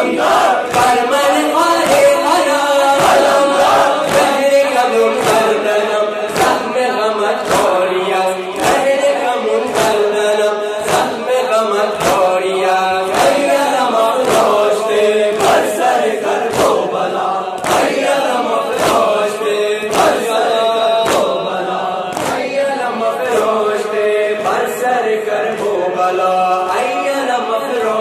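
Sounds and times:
men chanting in unison: 0.0 - 28.0
person singing into a microphone: 0.0 - 28.0
chest-beating slaps: 0.2 - 1.1, 3.0 - 6.7, 7.4 - 7.8, 8.6 - 9.0, 9.6 - 10.2, 10.8 - 11.2, 11.9 - 12.4, 14.2 - 14.6, 16.4 - 16.8, 17.6 - 19.2, 19.8 - 21.5, 22.1 - 22.6.

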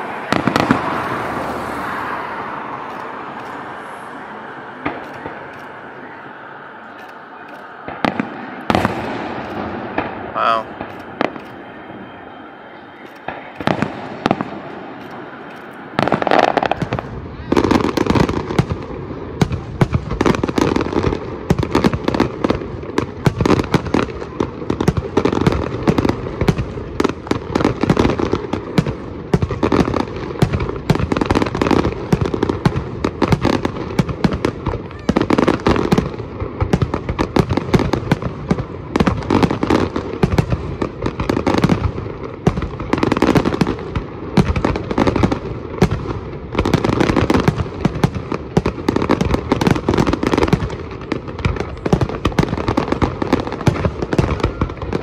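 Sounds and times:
fireworks bursting and crackling: 0.0 - 55.0.

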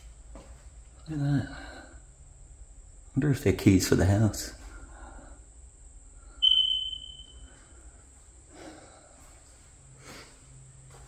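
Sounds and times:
smoke alarm chirp: 6.4 - 7.8.

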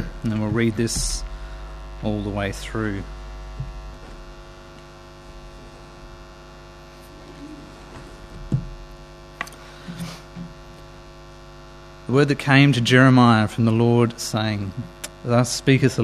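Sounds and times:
electrical mains hum: 0.0 - 16.0
knocks: 8.0 - 8.8.

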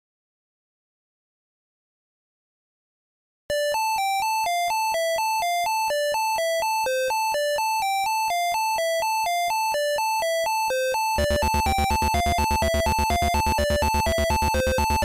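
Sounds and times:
chiptune melody: 3.5 - 15.0.

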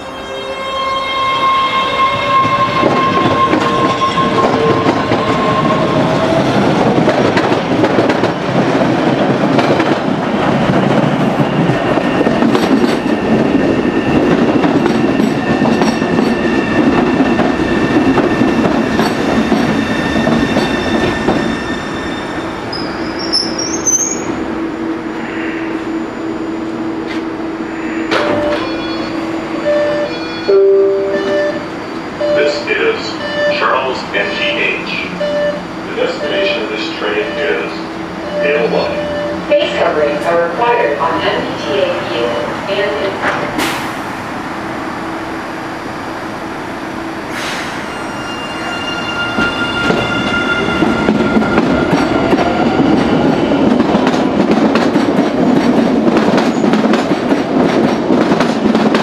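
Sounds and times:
train wheel and rail noise: 0.0 - 59.0
brake squeal: 19.9 - 24.4, 47.4 - 51.6
train standing hum: 22.2 - 48.5.

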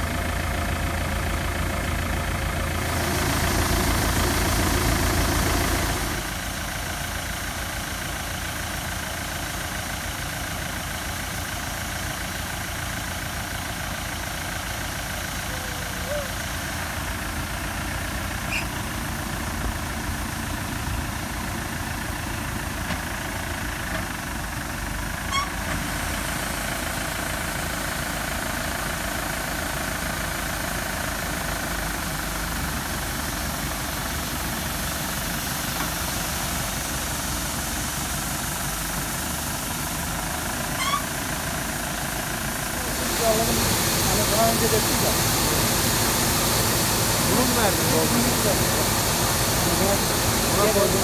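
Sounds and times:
diesel tractor engine idling: 0.0 - 51.0
rice pouring from auger spout: 2.8 - 6.7, 31.9 - 51.0.

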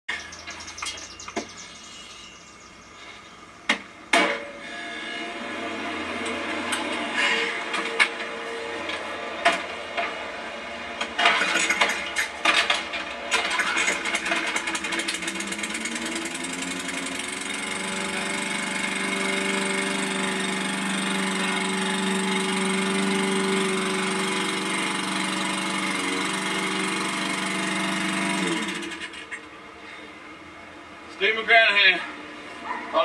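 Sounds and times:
lawnmower engine starting: 4.1 - 29.5.

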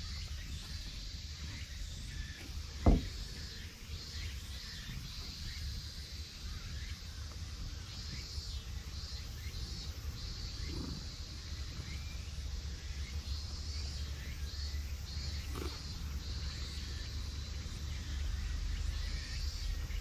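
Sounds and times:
dull thump: 2.4 - 3.6.

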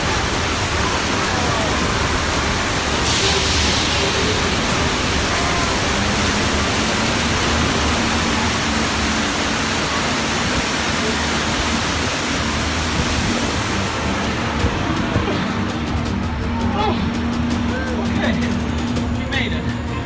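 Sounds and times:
water surging and crashing: 0.0 - 20.0.

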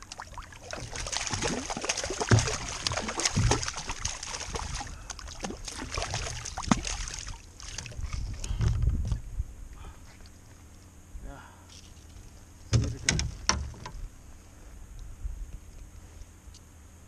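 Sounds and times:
water splashing and trickling: 0.0 - 9.2.

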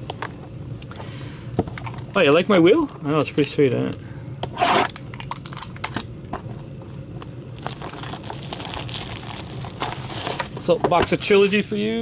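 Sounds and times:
plastic wrap crinkling and tearing: 7.2 - 11.7.

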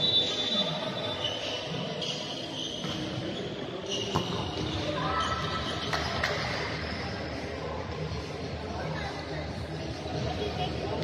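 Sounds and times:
sneakers squeaking on gym floor: 0.0 - 7.2
murmur of players: 0.0 - 11.0.

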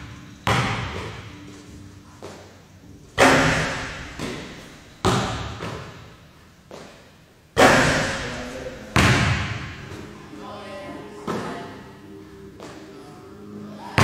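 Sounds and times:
basketball bouncing in echoing gym: 0.0 - 2.5, 3.2 - 10.1, 11.3 - 11.8.

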